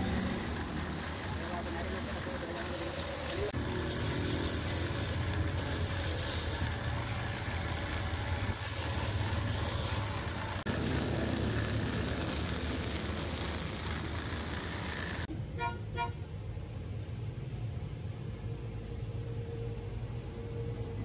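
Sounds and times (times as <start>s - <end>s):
rotary buffer grinding rubber: 0.0s - 15.3s.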